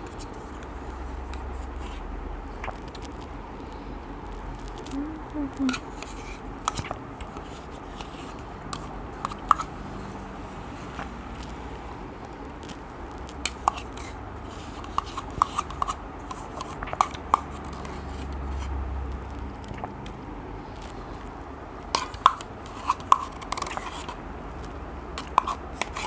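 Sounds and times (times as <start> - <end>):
spoon scraping plastic cup: 5.6 - 10.2, 12.6 - 18.8, 21.9 - 26.0.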